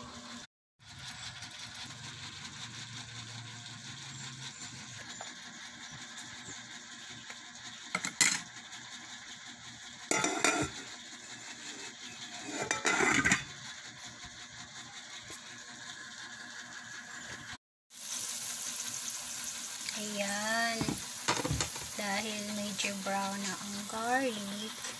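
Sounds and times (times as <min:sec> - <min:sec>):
onion and garlic sizzling in oil: 0:00.0 - 0:24.9
glass lid clattering on pot: 0:12.6 - 0:13.4.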